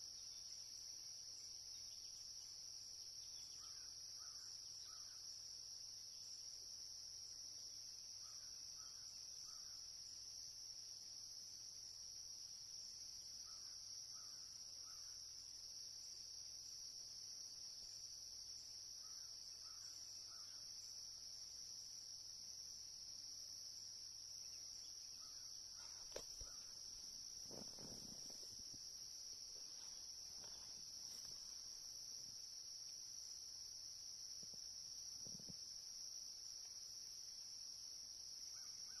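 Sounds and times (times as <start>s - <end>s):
insects trilling: 0.0s - 39.0s
soft low bumps: 25.9s - 31.6s.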